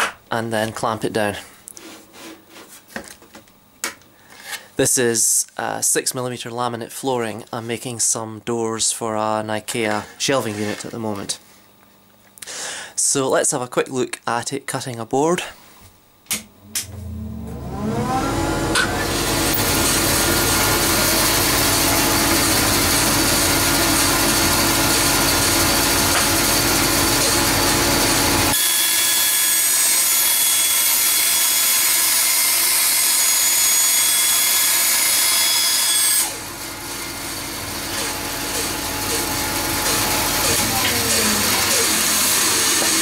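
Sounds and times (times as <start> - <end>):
bandsaw whine: 16.4 - 43.0
saw blade cutting board: 16.6 - 43.0.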